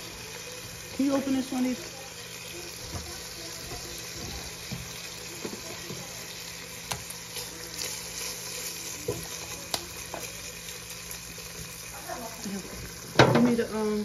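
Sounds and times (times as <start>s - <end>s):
bacon sizzling in a pot: 0.0s - 14.0s
spatula stirring knocks: 2.8s - 6.1s, 12.7s - 13.6s.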